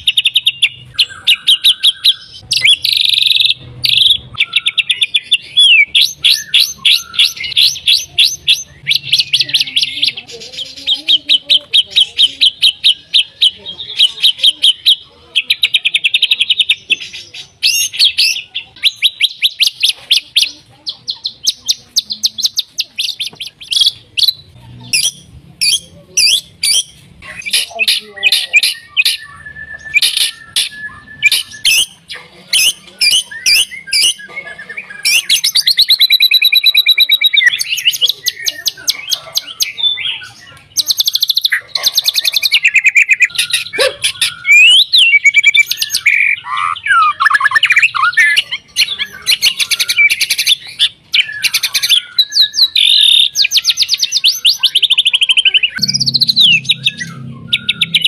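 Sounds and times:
songbird singing varied song: 0.0s - 58.0s.

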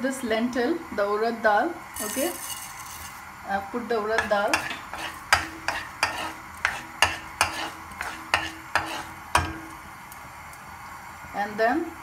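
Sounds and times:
oil sizzling: 1.6s - 12.0s
spoon scraping a pan: 2.0s - 3.3s, 4.1s - 9.8s.

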